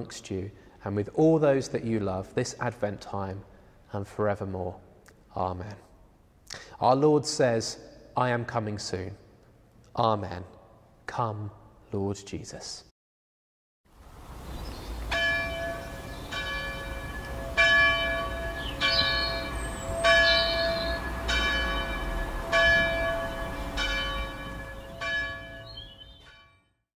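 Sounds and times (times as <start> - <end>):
church bells ringing: 15.0 - 26.8.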